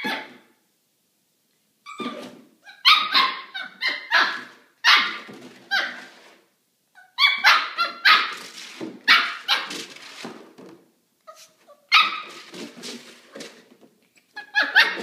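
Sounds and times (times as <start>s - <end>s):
puppy barking: 2.7s - 6.1s, 7.0s - 8.5s, 9.1s - 9.8s, 11.3s - 12.4s, 14.4s - 15.0s.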